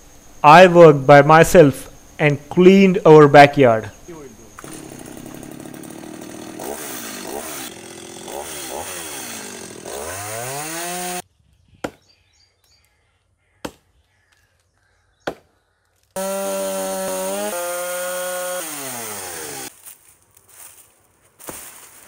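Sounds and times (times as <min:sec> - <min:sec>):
chainsaw revving: 0:04.5 - 0:11.2, 0:16.2 - 0:19.7.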